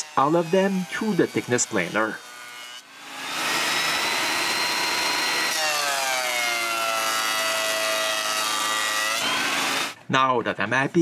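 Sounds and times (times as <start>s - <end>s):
thickness planer planing wood: 0.0s - 10.0s.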